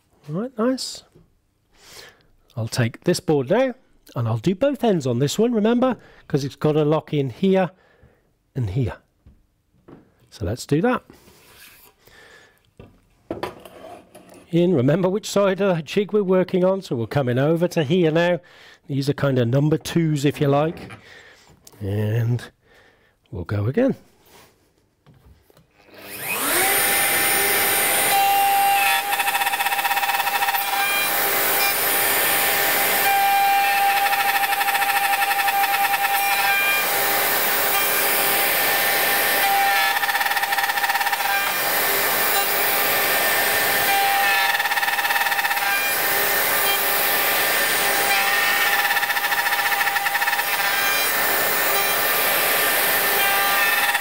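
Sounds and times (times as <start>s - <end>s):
router whining while cutting wood: 25.8s - 54.0s.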